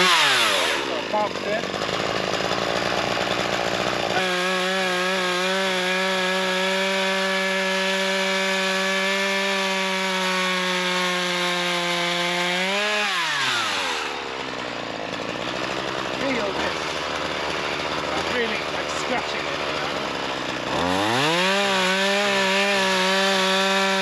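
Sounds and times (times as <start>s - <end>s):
chainsaw cutting log: 0.0s - 24.0s.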